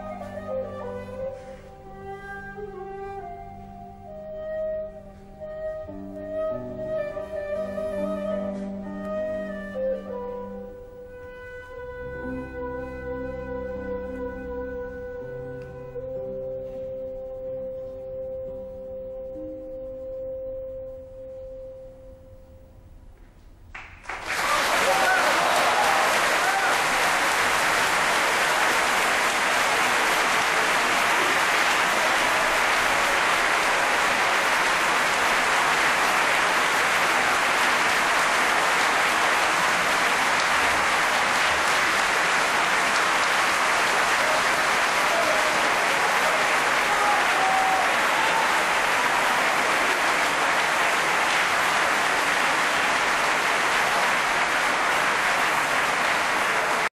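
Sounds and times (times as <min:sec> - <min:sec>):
audience applause: 0:23.8 - 0:56.9.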